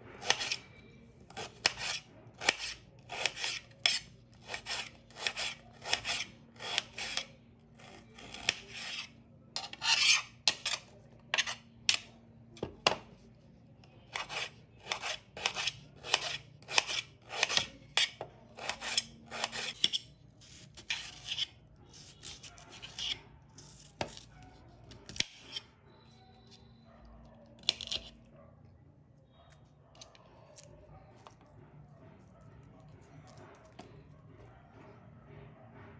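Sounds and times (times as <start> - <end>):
knife slicing onion crunch: 0.2 - 0.6, 1.4 - 12.1, 14.1 - 25.6, 27.6 - 28.2.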